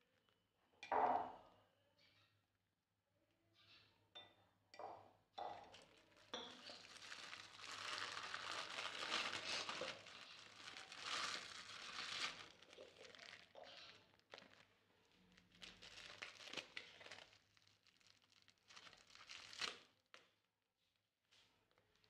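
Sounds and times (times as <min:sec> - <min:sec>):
plastic bag crinkling: 0:05.7 - 0:19.9.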